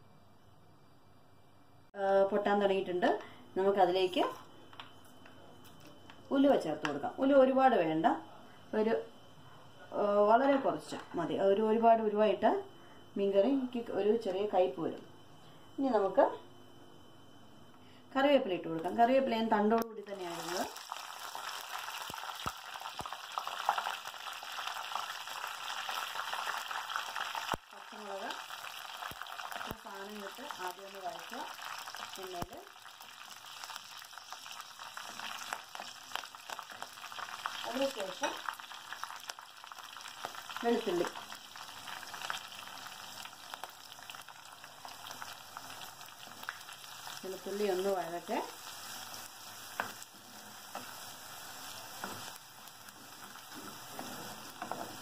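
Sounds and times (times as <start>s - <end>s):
leaves sizzling in hot oil: 20.0s - 55.0s.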